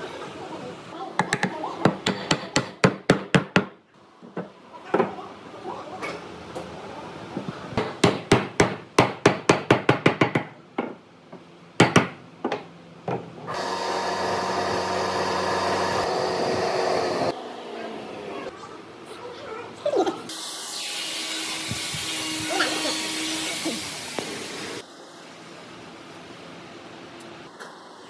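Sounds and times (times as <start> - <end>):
hammer striking wood: 1.9 - 3.8, 7.8 - 10.9, 11.8 - 12.6
steady machine noise: 13.5 - 17.4.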